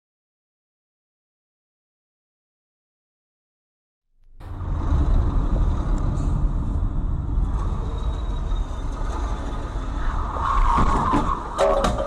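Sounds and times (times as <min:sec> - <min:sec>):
car engine and tyre rumble: 0:04.2 - 0:12.0.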